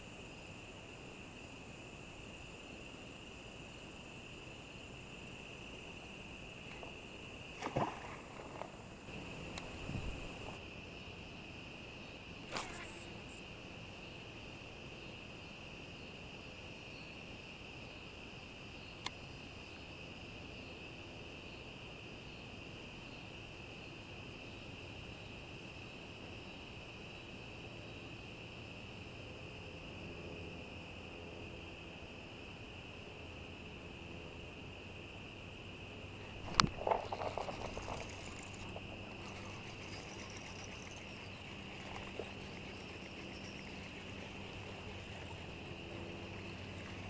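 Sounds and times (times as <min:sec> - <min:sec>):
crickets and insects trilling: 0:00.0 - 0:47.0
small tick: 0:19.0 - 0:19.2.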